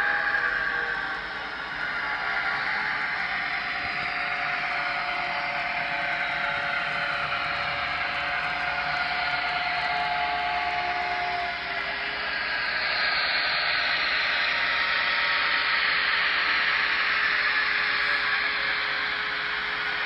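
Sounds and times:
model train wheel noise: 0.0s - 20.0s
tinny model locomotive engine sound: 0.0s - 20.0s.

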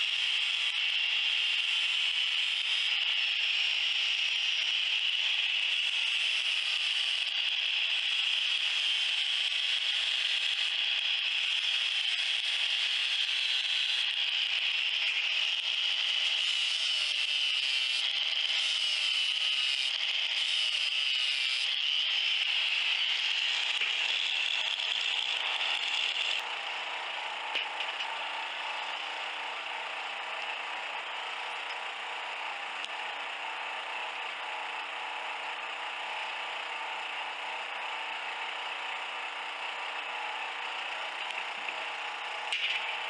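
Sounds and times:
angle grinder grinding steel: 0.0s - 32.5s.

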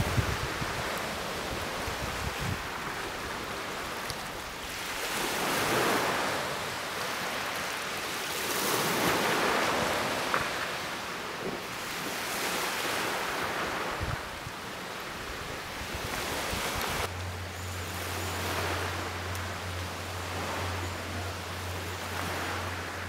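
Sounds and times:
wind on microphone: 0.0s - 6.1s, 11.5s - 17.1s
small waves washing onto shore: 0.0s - 23.0s.

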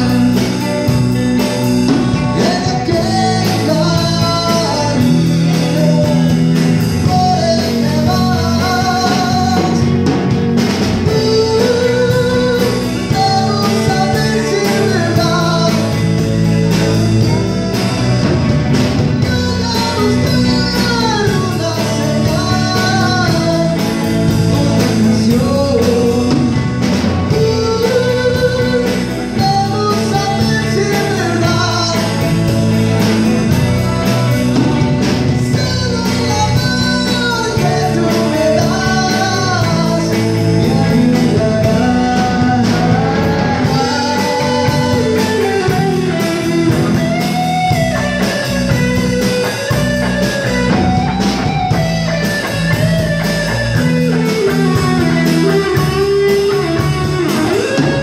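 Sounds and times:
drums: 0.0s - 58.0s
electric guitar: 0.0s - 58.0s.

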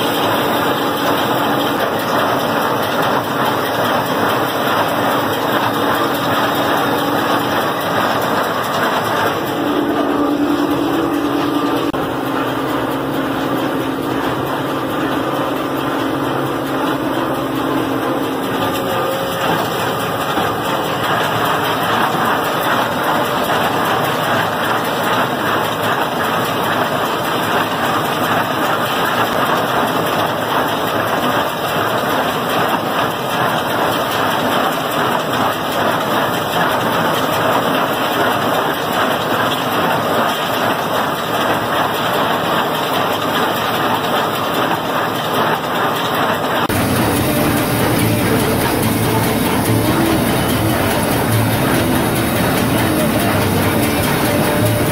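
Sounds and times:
tractor engine hum: 0.0s - 28.1s, 45.9s - 54.9s
hay baler working: 0.0s - 54.9s.

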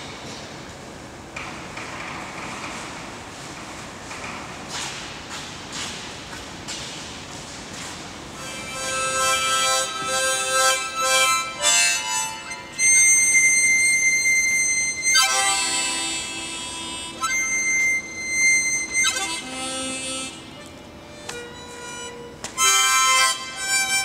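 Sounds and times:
harmonica chords: 8.4s - 24.0s
long high harmonica note: 8.4s - 24.0s.

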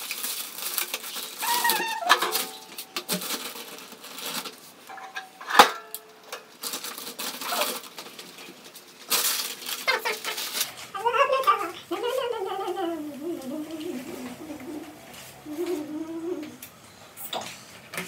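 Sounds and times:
plastic bag rustling and crinkling: 0.0s - 12.8s.

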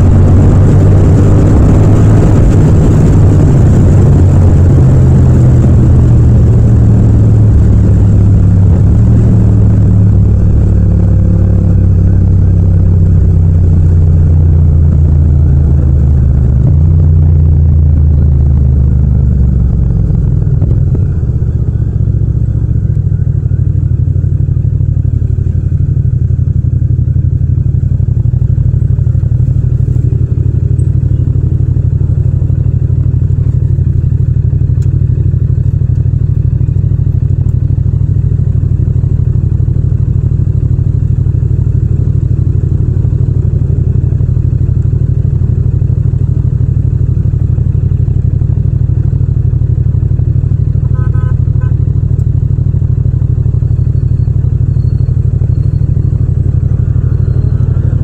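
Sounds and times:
motorcycle engine idling: 2.6s - 58.0s
short beeps: 53.6s - 58.0s.

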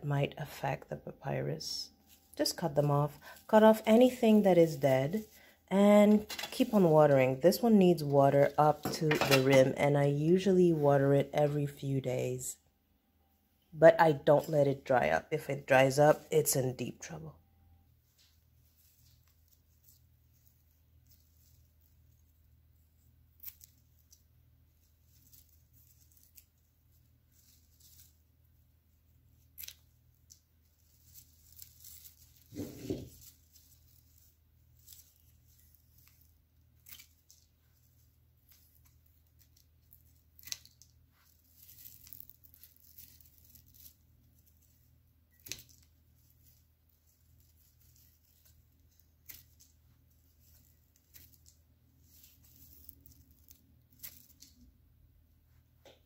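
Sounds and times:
low steady hum: 0.0s - 56.0s
rustling of stems: 1.9s - 9.9s, 18.1s - 54.8s.

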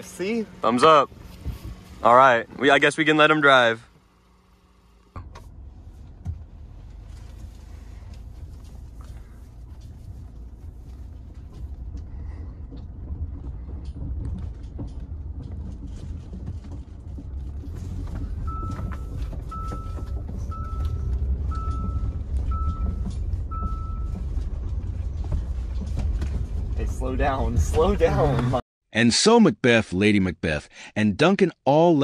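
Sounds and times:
car engine and road rumble: 0.0s - 28.6s
car warning chime beeps: 18.4s - 24.4s.

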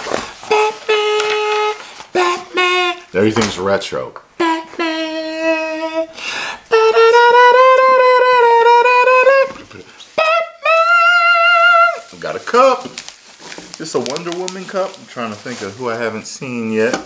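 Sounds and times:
man singing wordless notes: 0.4s - 13.0s.

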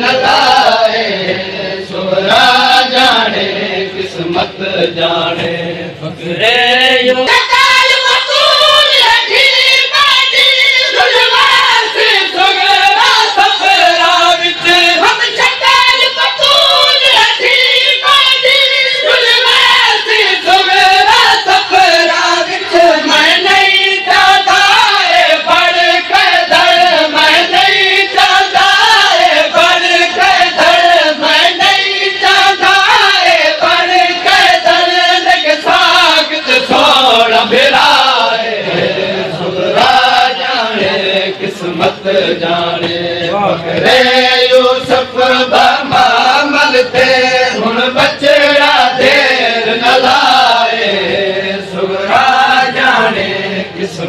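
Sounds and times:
men chanting in unison: 0.0s - 54.0s
sharp rhythmic slaps: 38.7s - 51.2s.

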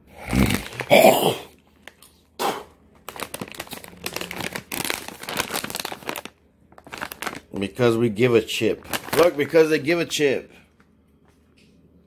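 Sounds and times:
plastic bag crinkling: 0.3s - 1.0s, 1.6s - 10.3s.

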